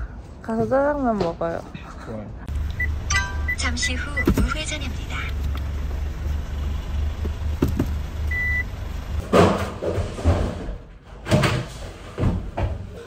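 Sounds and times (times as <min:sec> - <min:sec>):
car cabin rumble: 0:02.5 - 0:09.2
thumps and rustling of objects: 0:04.2 - 0:04.6, 0:07.2 - 0:08.0, 0:09.2 - 0:13.0.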